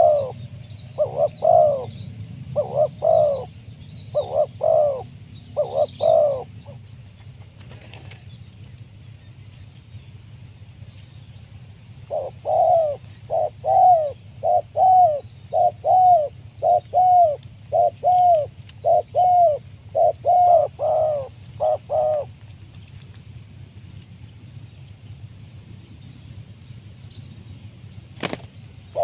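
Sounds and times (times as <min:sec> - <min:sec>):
dove cooing: 0:00.0 - 0:07.0, 0:12.0 - 0:22.4, 0:28.2 - 0:29.0
high ticks: 0:06.9 - 0:08.9, 0:22.4 - 0:24.1.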